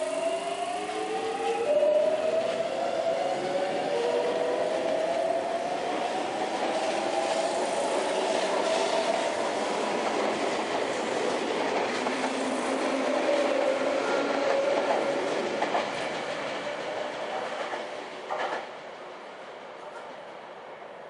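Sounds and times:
train wheels clattering over rails: 6.2 - 18.8.

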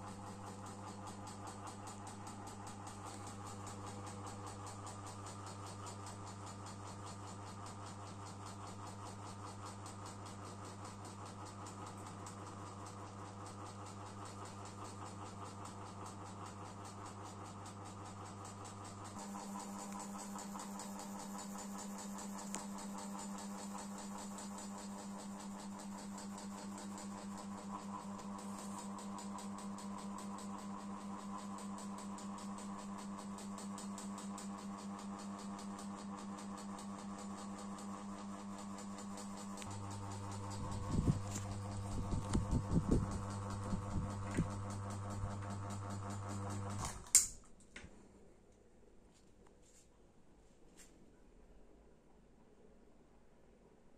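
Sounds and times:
ceiling fan motor hum: 0.0 - 48.6
fan ticking: 36.5 - 46.7.

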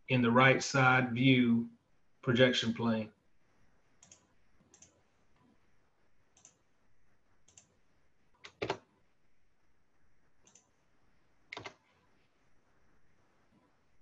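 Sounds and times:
computer mouse clicks: 4.0 - 5.0, 6.3 - 6.6, 7.4 - 7.8, 8.4 - 8.9, 10.4 - 10.7, 11.5 - 12.0.

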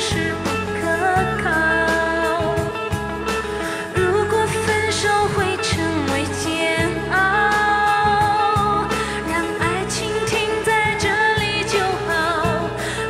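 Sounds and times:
live pop band with bass: 0.0 - 13.0.

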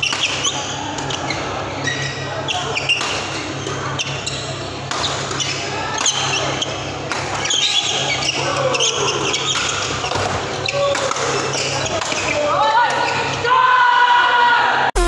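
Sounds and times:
sneakers squeaking on court: 0.0 - 12.4
racket hitting shuttlecock: 4.9 - 6.3, 7.1 - 7.7, 9.5 - 12.2.

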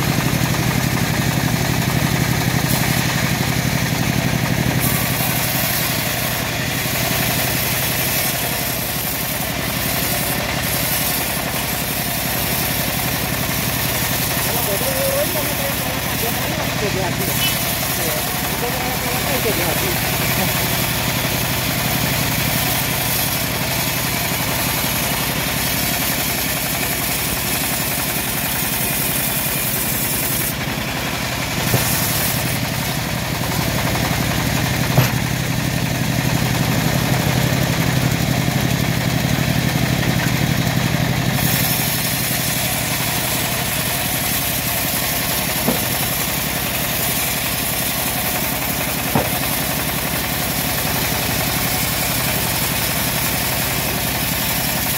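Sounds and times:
bandsaw mill cutting log: 0.0 - 54.9
short sharp knocks: 34.9 - 35.3, 45.7 - 45.9, 49.1 - 49.4.

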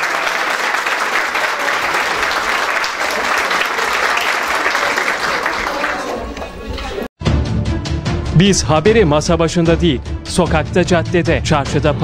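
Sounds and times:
crowd applauding: 0.0 - 7.1.

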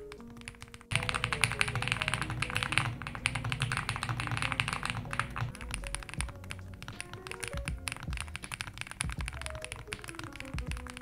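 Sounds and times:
background music: 0.0 - 11.0
mechanical keyboard typing: 0.0 - 11.0.

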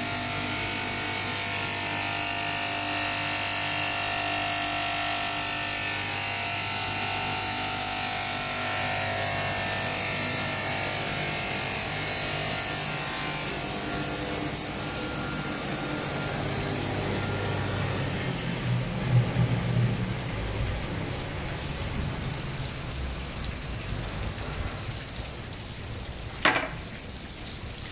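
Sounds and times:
spraying water hiss: 9.8 - 27.9
spindle motors humming: 11.4 - 23.1.

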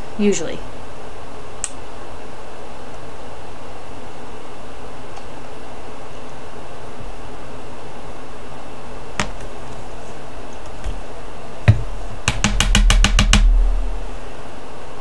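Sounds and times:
glass bottle knocking on table: 11.7 - 13.6.

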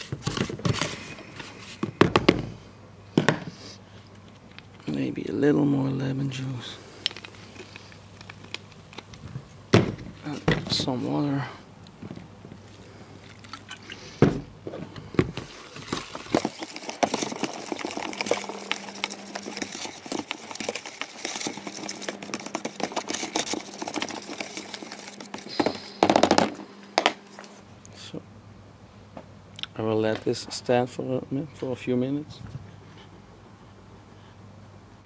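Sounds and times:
metal spoon scraping plastic tub: 15.4 - 26.0.

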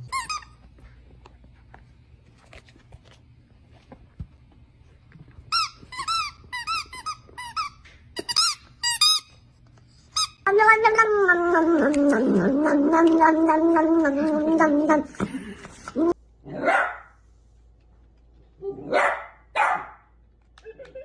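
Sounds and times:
squeaky toy squeaks: 5.5 - 9.3.

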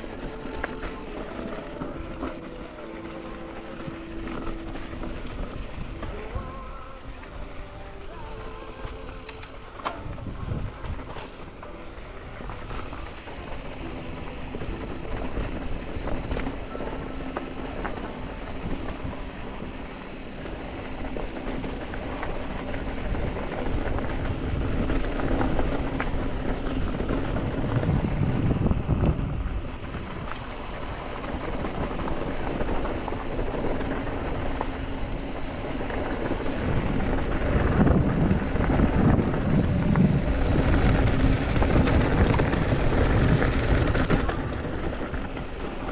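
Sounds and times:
tyres crunching over gravel: 0.0 - 9.1, 10.8 - 45.9
bike clicks and rattles: 0.0 - 45.9
wind buffeting microphone: 9.9 - 45.9.

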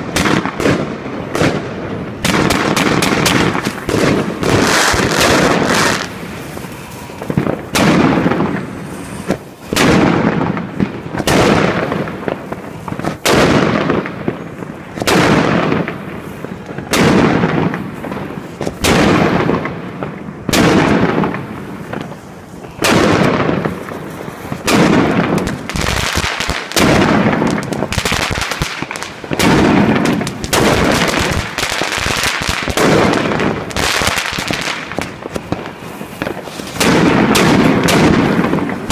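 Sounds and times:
firework crackle bursts: 0.0 - 38.9
firework launch bangs: 0.0 - 38.9.

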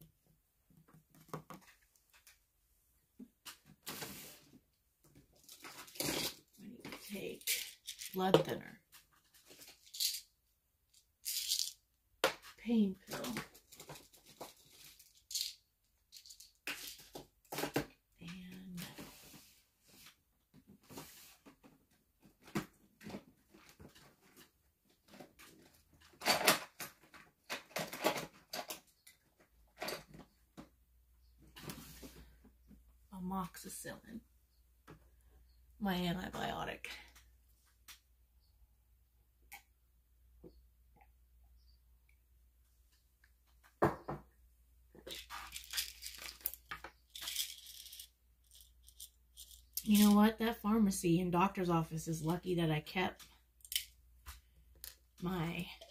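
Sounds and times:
small clicks and rustles: 0.7 - 2.5, 8.9 - 10.3, 12.5 - 30.7, 44.9 - 50.2.

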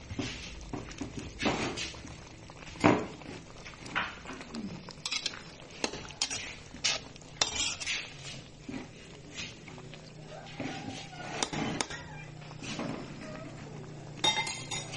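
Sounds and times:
metal spatula scraping a pan: 5.0 - 8.9, 10.7 - 12.8.

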